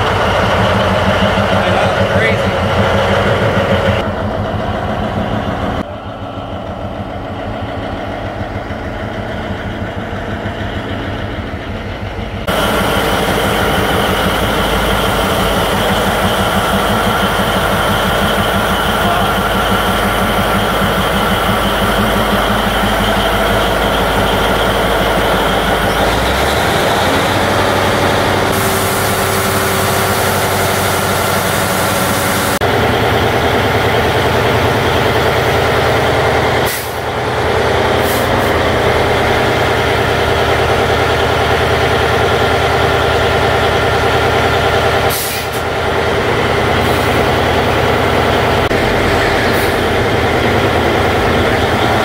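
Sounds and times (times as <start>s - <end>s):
diesel engine running under load: 0.0s - 52.0s
air hissing: 28.5s - 32.6s.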